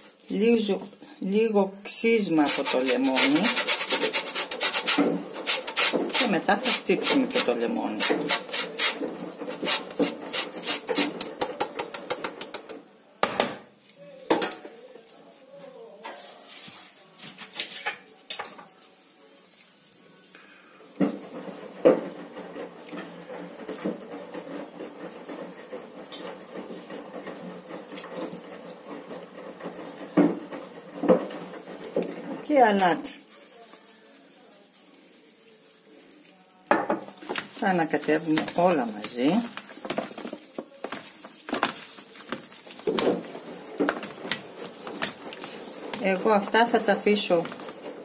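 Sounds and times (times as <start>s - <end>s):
lemon rasping on metal grater: 2.2s - 12.5s, 21.2s - 32.6s
kitchen utensils knocking and clinking: 2.2s - 13.6s, 21.0s - 33.1s, 36.7s - 48.0s.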